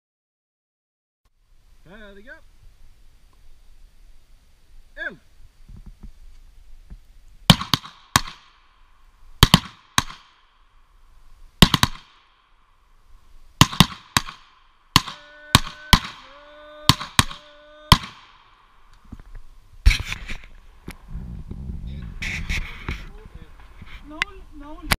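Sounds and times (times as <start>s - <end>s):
handgun shots echoing: 7.5s - 8.6s, 9.4s - 10.4s, 11.6s - 12.3s, 13.6s - 16.3s, 16.9s - 18.5s.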